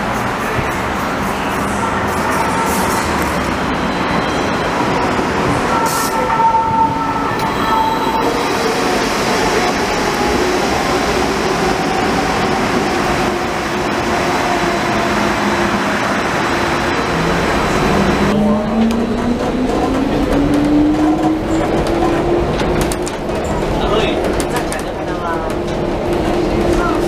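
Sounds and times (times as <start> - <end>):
tram wheels rolling on rail: 0.0 - 27.0.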